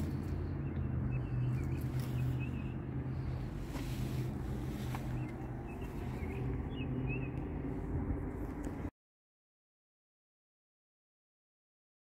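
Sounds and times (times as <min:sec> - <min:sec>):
small birds chirping: 0:00.0 - 0:08.8
low steady hum: 0:00.0 - 0:08.9.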